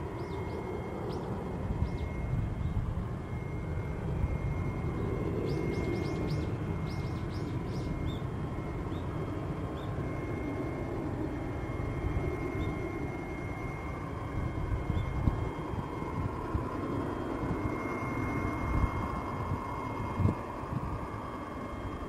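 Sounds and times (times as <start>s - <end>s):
birds chirping: 0.0s - 2.8s, 4.7s - 10.1s, 14.7s - 15.3s
distant jet engine rumble: 0.0s - 22.0s.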